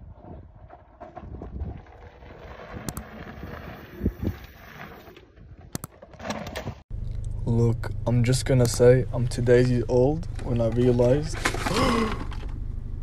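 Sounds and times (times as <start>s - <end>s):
wind buffeting microphone: 0.0s - 4.6s.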